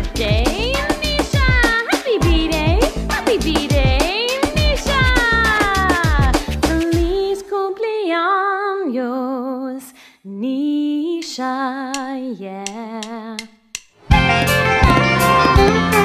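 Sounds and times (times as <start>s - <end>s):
woman singing: 0.0s - 13.5s
backing music with guitar: 14.0s - 16.0s.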